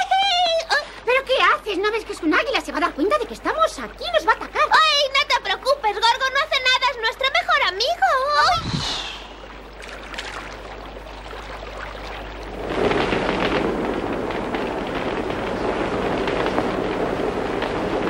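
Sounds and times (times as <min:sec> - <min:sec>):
flames crackling and popping: 0:08.4 - 0:18.0.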